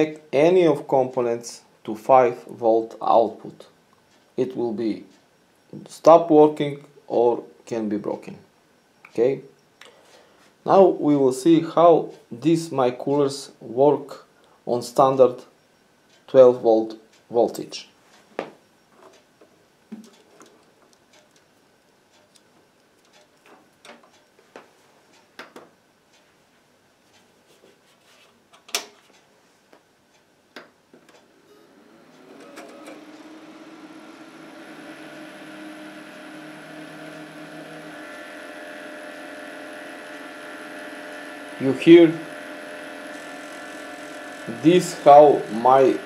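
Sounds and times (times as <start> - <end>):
computer fans humming: 31.2 - 46.0.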